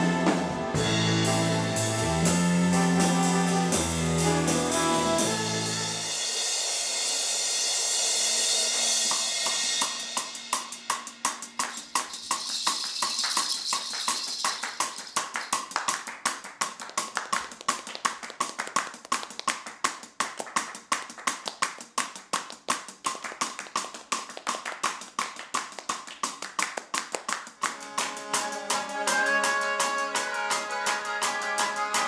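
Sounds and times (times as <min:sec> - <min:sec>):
cymbal ringing: 0:05.9 - 0:14.6
people clapping in rhythm: 0:11.6 - 0:28.8.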